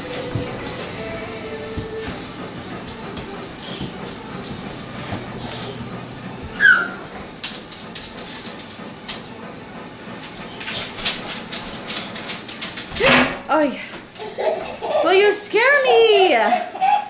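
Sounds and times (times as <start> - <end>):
high squeal falling in pitch: 6.5 - 7.1.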